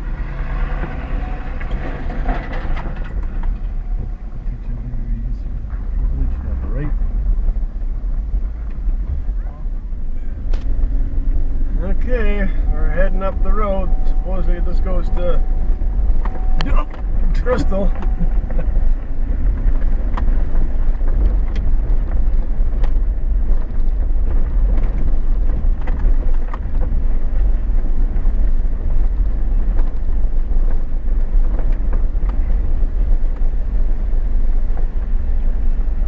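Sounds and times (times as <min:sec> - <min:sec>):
pickup engine and tyres rumbling: 0:00.0 - 0:36.0
clicks and knocks from bumpy ride: 0:00.7 - 0:04.8, 0:16.0 - 0:36.0.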